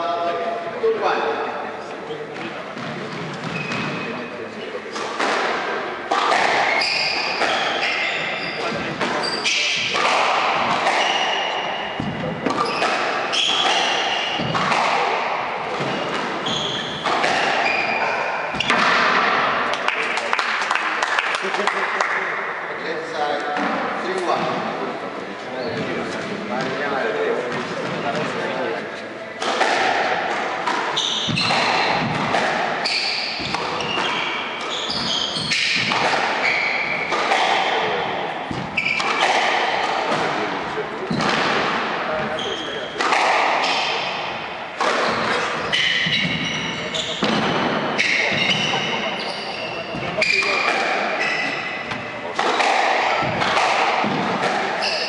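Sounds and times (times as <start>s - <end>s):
shoes squeaking on wooden floor: 2.8s - 5.1s, 6.2s - 15.1s, 15.7s - 19.1s, 30.6s - 37.9s, 38.5s - 40.4s, 42.1s - 43.3s, 44.8s - 55.0s
squash ball cracking off rackets: 4.9s - 8.0s, 8.6s - 21.4s, 29.4s - 46.4s, 50.0s - 55.0s.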